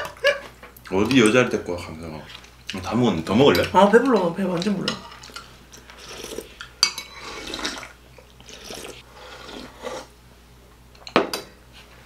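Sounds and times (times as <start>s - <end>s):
people slurping: 5.8s - 10.1s.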